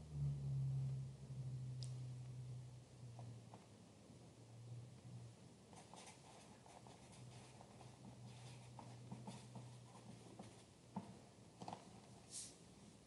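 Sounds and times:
low hum: 0:00.0 - 0:05.5.

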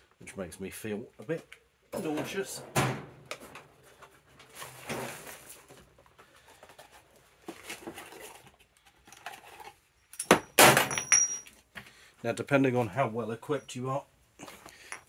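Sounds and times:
metal tools clattering: 0:10.1 - 0:11.6.

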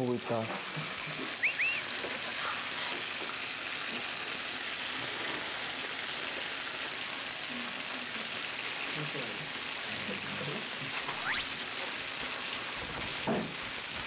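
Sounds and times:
chicken sizzling in a pan: 0:00.0 - 0:14.0.

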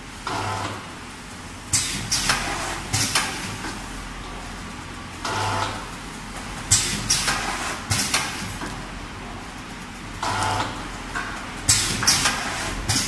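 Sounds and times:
packaging machine motor hum: 0:10.2 - 0:13.0.

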